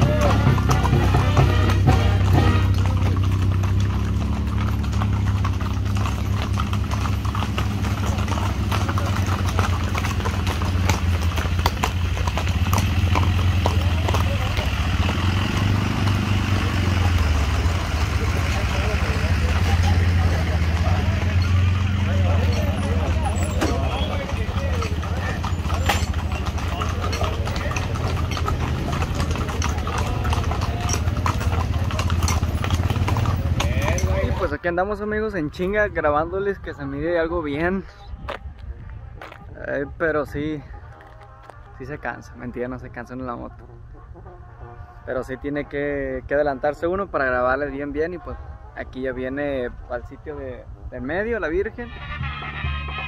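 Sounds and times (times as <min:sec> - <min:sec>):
motorcycle engine running: 0:00.0 - 0:34.4
horse hoofbeats clip-clopping: 0:00.0 - 0:45.5.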